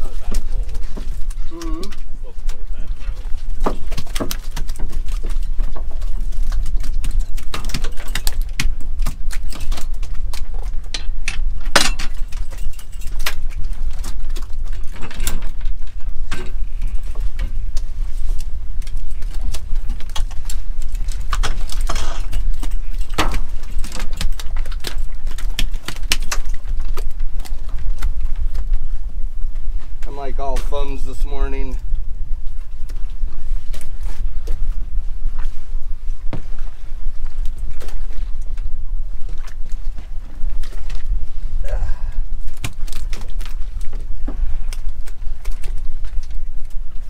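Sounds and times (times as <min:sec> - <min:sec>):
steady low rumble: 0:00.0 - 0:47.0
fishing gear clinking on metal deck: 0:10.9 - 0:13.8.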